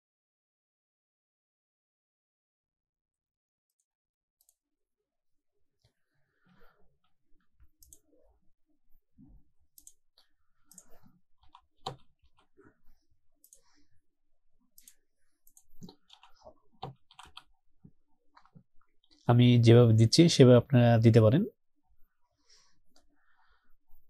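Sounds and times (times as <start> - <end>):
faint mouse clicks: 3.7 - 4.6, 5.8 - 8.3, 9.7 - 12.7, 13.4 - 13.8, 14.7 - 17.6
keyboard keystrokes: 14.8 - 17.5.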